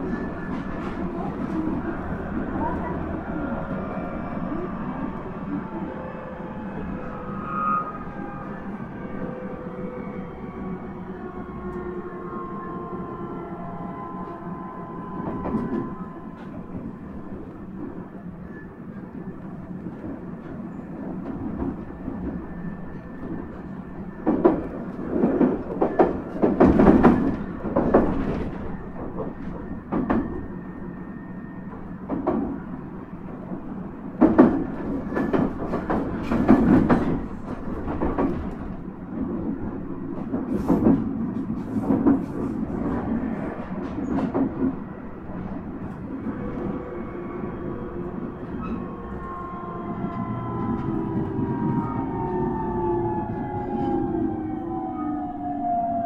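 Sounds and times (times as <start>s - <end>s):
train wheels clacking over rail joints: 24.2s - 30.5s, 34.2s - 39.4s, 40.1s - 44.8s.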